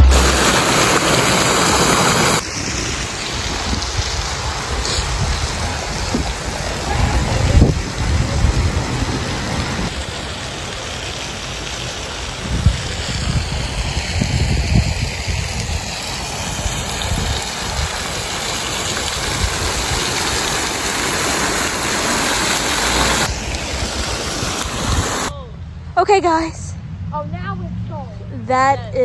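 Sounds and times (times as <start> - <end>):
outdoor hiss: 0.0 - 7.0, 9.6 - 14.2, 15.2 - 25.3
wind on microphone: 0.0 - 10.0, 12.3 - 21.5, 22.4 - 26.0
fountain water splashing: 0.0 - 25.3.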